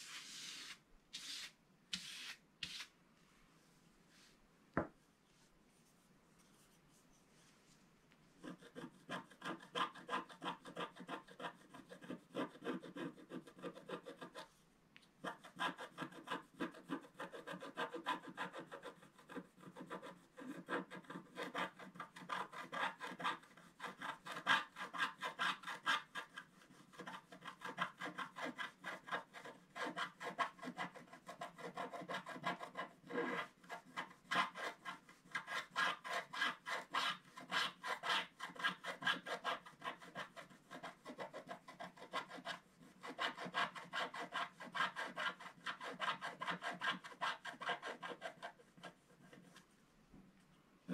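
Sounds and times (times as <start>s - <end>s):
stylus scratching card: 19.8s - 49.6s.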